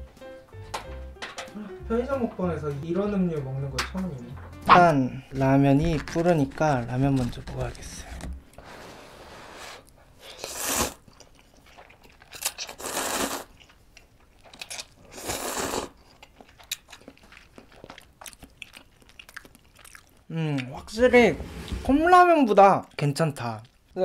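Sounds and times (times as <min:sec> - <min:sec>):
noodles slurped: 0:09.7 - 0:20.2
wet chewing clicks: 0:10.2 - 0:20.9, 0:22.4 - 0:24.0.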